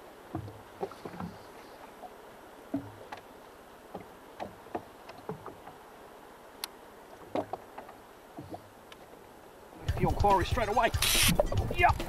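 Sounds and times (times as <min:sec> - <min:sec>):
faint steady hiss: 0:00.0 - 0:12.0
water lapping against hull: 0:00.0 - 0:12.0.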